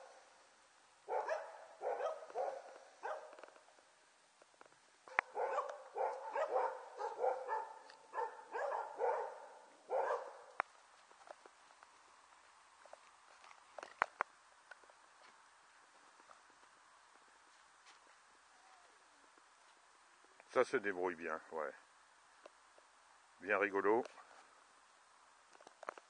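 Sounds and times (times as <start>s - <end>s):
puppy yapping: 1.1s - 3.4s, 5.1s - 10.5s.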